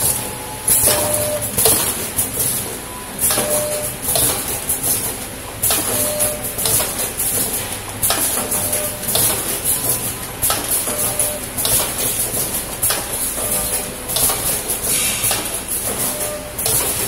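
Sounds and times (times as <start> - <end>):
packing machines clattering: 0.0 - 17.0
machine hiss bursts: 14.8 - 16.9.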